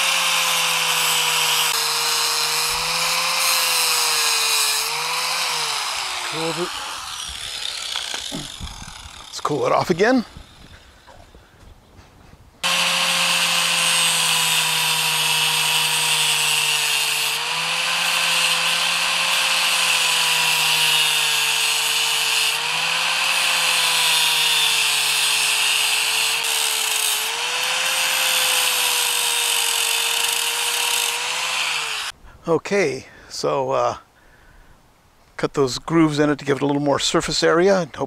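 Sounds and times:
angle grinder grinding metal: 0.0s - 10.9s, 12.6s - 32.2s.

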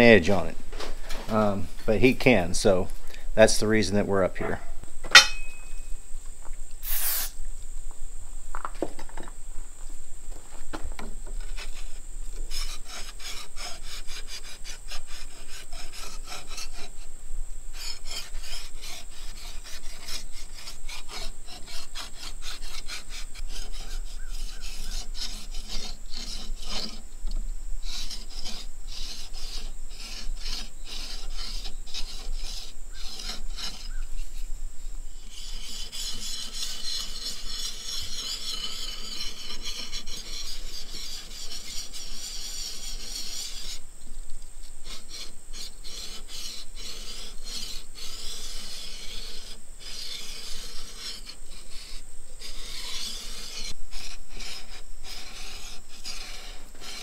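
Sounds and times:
file rasping on steel blade: 5.2s - 5.8s, 12.5s - 17.0s, 17.7s - 27.0s, 27.8s - 34.4s, 35.2s - 43.8s, 44.8s - 57.0s.

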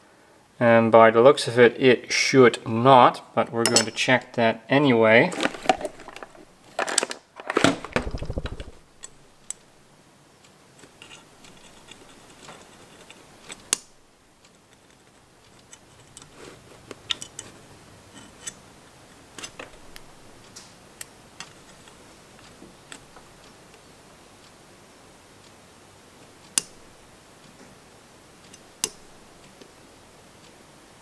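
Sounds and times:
test probes clicking and tapping: 5.4s - 9.7s, 26.5s - 27.7s, 28.5s - 29.8s
low rattle: 7.6s - 9.3s.

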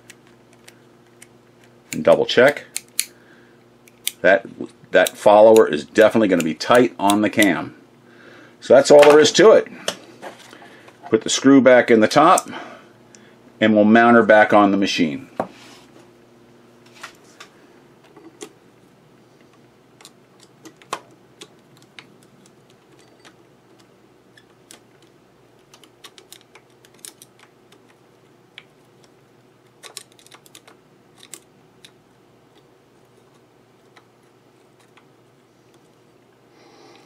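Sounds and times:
faint steady hum: 0.0s - 37.0s.

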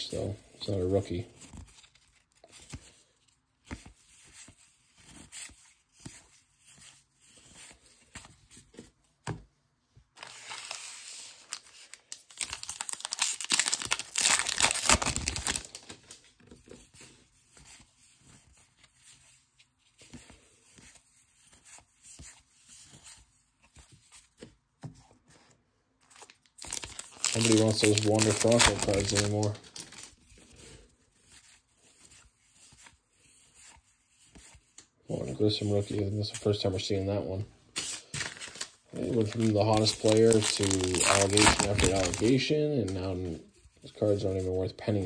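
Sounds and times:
cards rustling and clicking: 1.0s - 9.4s, 10.2s - 34.9s, 37.8s - 43.1s
wrapper tearing and crinkling: 10.2s - 16.2s, 26.2s - 30.2s, 37.8s - 42.4s.

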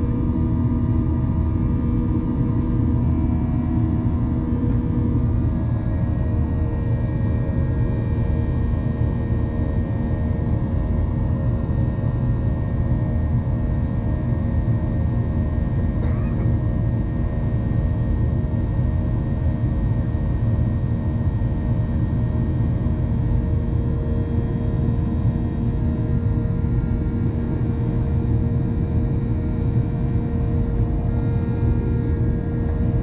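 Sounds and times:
steady tonal hum: 0.0s - 13.4s, 22.6s - 33.0s
jet engine cabin roar: 0.0s - 19.6s, 21.0s - 33.0s.

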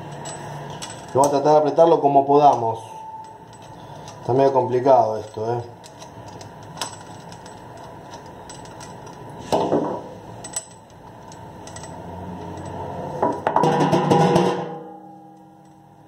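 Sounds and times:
metal clicks and scraping: 0.0s - 1.5s, 3.2s - 9.7s, 10.4s - 13.4s
metallic clattering: 0.0s - 1.8s, 2.5s - 15.8s
metallic ringing: 0.0s - 5.5s, 10.3s - 16.0s.

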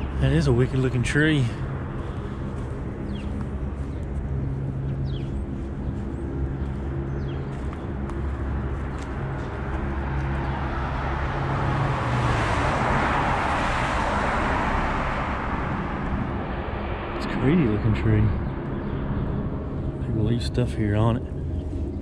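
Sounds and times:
vehicle engine humming: 0.0s - 22.0s
car passing with tyre hiss: 10.0s - 17.2s.

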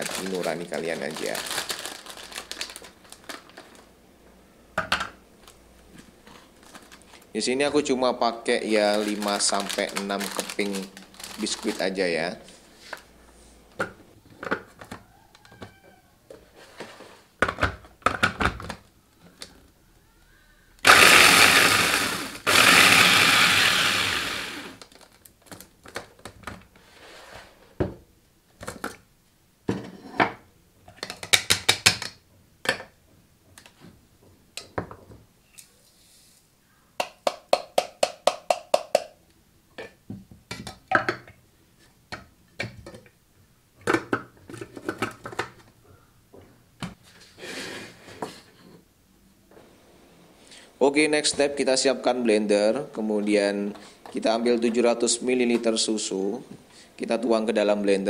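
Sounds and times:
electric food chopper grinding: 20.8s - 24.8s.

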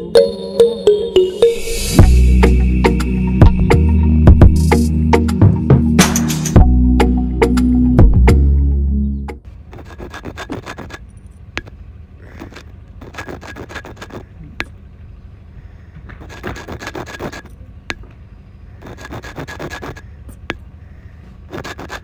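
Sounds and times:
fingers scraping in sand: 9.7s - 14.4s, 16.1s - 17.6s, 18.8s - 20.2s, 21.4s - 22.0s.

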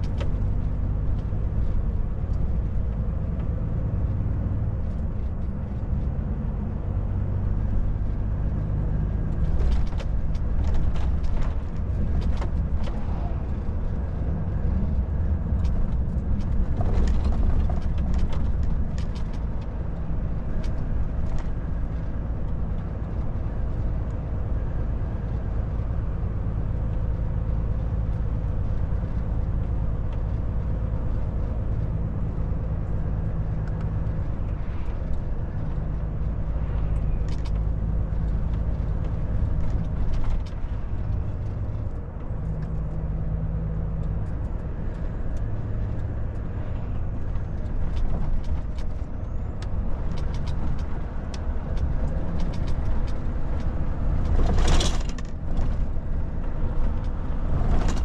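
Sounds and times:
tyre and road noise: 0.0s - 58.0s
light ticks and rattles: 14.8s - 24.2s, 25.2s - 58.0s.

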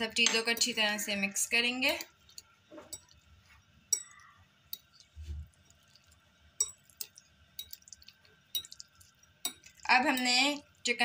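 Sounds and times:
metal spoon clinking on glass bowl: 0.0s - 0.8s, 1.8s - 3.2s, 3.9s - 5.1s, 6.6s - 10.6s.

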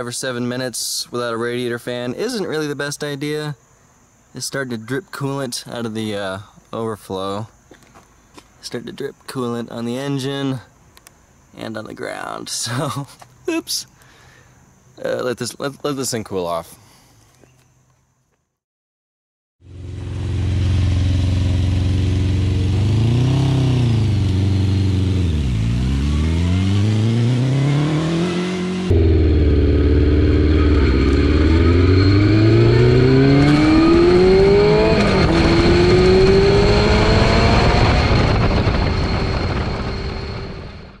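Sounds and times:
motorcycle engine revving: 19.6s - 40.8s.

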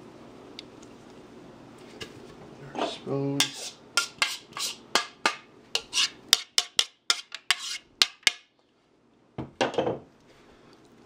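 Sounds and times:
metal spoon scraping a bowl: 2.8s - 4.8s, 5.8s - 8.3s.

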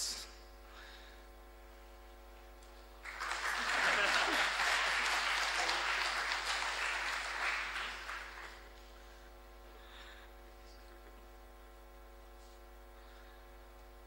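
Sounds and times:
faint steady hum: 0.0s - 14.0s
audience applauding: 3.0s - 8.8s.

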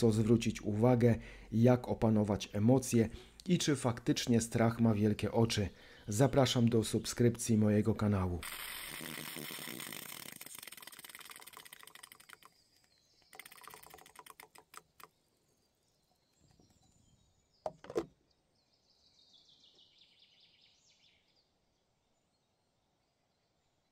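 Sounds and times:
hand coffee grinder ratcheting: 8.4s - 12.5s, 13.3s - 15.1s.

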